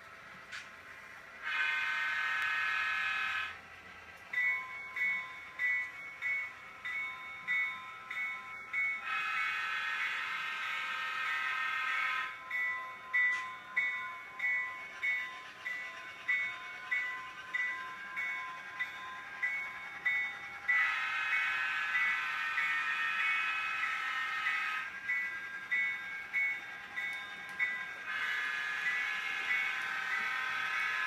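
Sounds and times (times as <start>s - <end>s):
model locomotive horn: 1.4s - 3.6s, 9.0s - 12.6s, 20.7s - 25.0s, 28.0s - 31.0s
locomotive bell ringing: 1.4s - 31.0s.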